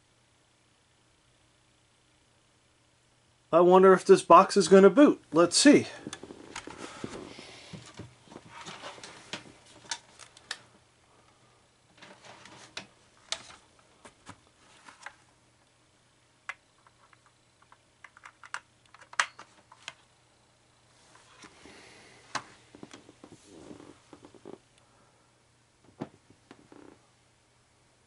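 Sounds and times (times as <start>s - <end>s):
cable box rustling: 6.0s - 10.6s, 11.9s - 15.3s.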